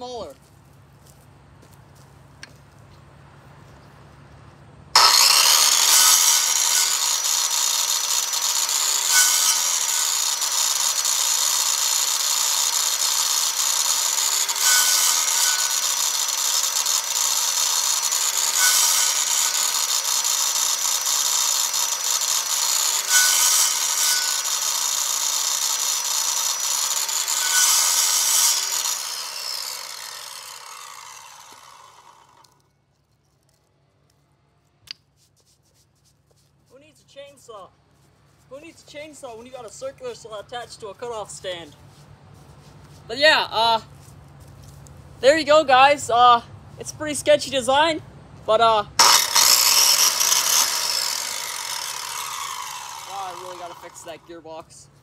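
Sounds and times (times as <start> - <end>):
circular saw cutting wood: 5.0 - 32.6, 49.0 - 54.9
saw blade spinning down: 5.0 - 32.6, 49.0 - 54.5.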